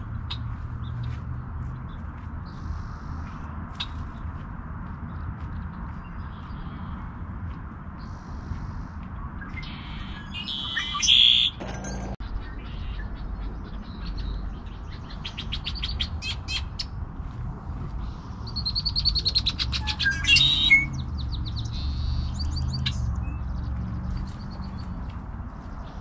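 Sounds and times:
blackbirds singing trilled notes: 8.0 - 16.9, 18.1 - 25.0.

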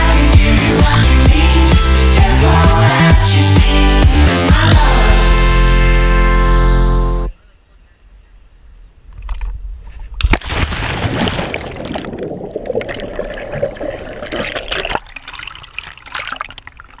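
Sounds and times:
splash into water: 10.2 - 17.0
water sloshing: 10.3 - 17.0
underwater rushing and bubbling: 10.7 - 17.0.

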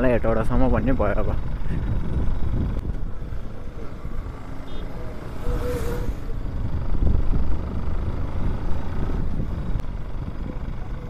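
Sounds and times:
motorcycle running: 0.0 - 11.0
truck passing: 1.0 - 11.0
wind rumble on microphone: 1.5 - 3.6, 5.3 - 11.0.

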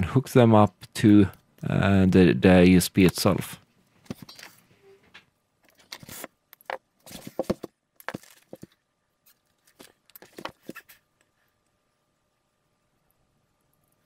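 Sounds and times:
wires rustling and clicking: 3.0 - 11.8.

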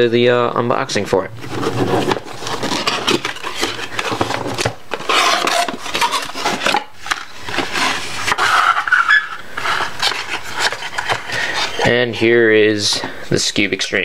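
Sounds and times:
cardboard rustling and sliding: 1.4 - 12.2.

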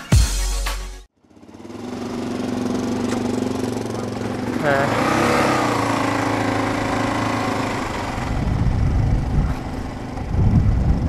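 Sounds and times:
motorcycle engine running: 1.2 - 11.0
wind buffeting microphone: 7.6 - 11.0.

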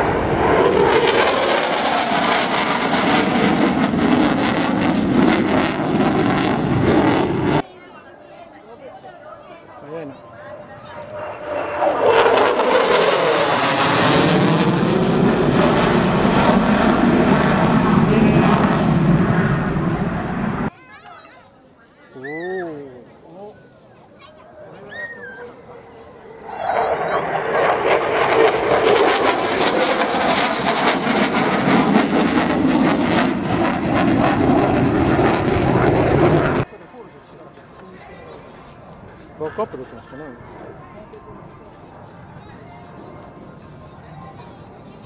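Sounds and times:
jet fighter passing: 0.0 - 7.7, 10.1 - 20.7, 25.7 - 36.8.

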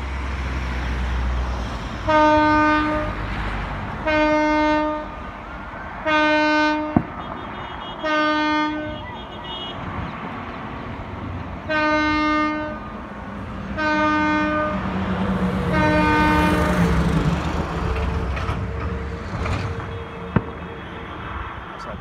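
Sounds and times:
train horn blasts: 2.0 - 3.2, 4.0 - 5.2, 6.0 - 9.9, 11.6 - 12.9, 13.7 - 14.9, 15.6 - 17.0, 19.5 - 21.6.

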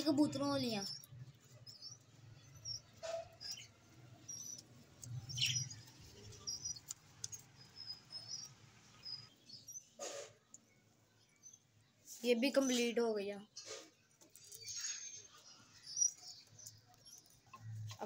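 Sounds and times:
budgerigars chirping: 5.2 - 6.8
brief scrapes: 10.0 - 10.4.

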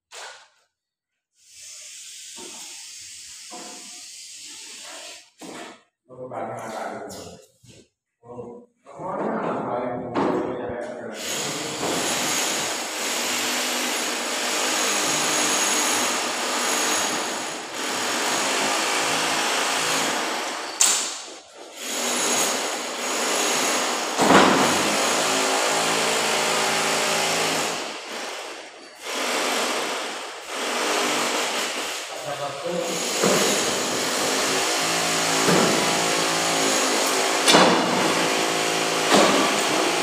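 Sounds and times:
power tool motor running: 32.9 - 40.0.

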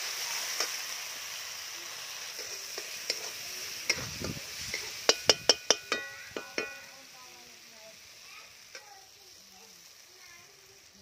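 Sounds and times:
paste sizzling in hot oil: 0.0 - 11.0
metal spatula scraping pan: 2.3 - 7.0.

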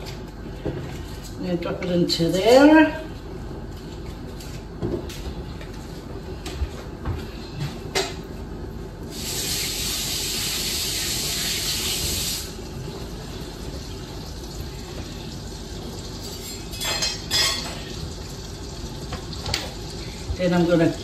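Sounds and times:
water running from tap: 9.1 - 16.6, 17.6 - 21.0.

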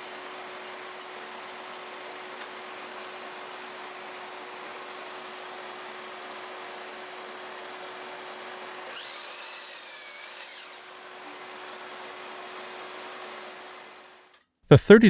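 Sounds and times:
miter saw cutting wood: 4.4 - 14.3.

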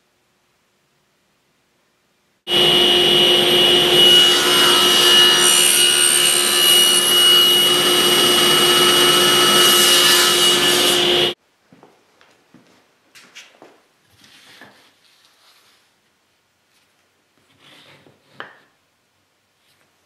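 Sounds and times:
power saw cutting wood: 2.5 - 11.4.

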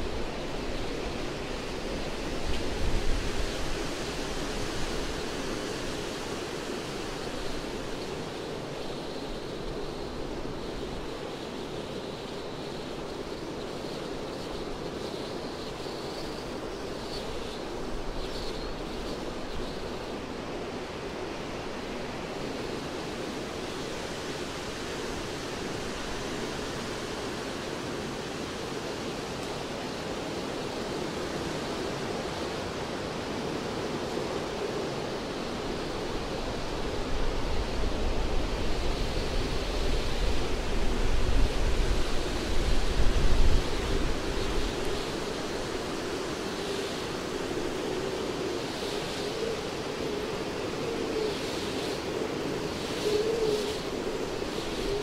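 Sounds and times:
wind rushing through pine trees: 0.0 - 55.0
wind buffeting microphone: 35.1 - 55.0.

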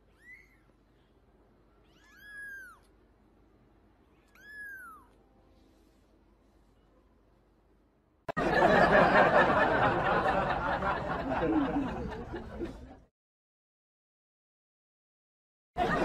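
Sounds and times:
group of people laughing: 8.3 - 13.1, 15.8 - 16.0.

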